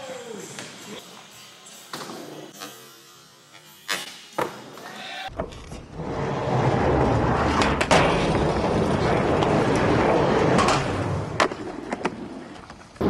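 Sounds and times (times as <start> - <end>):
skateboard wheels rolling: 4.4 - 13.0.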